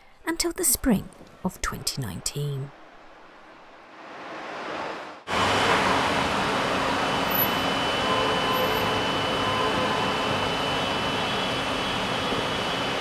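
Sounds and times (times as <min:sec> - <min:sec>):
loud rushing roar: 0:03.8 - 0:13.0
faint steady whine: 0:05.0 - 0:13.0.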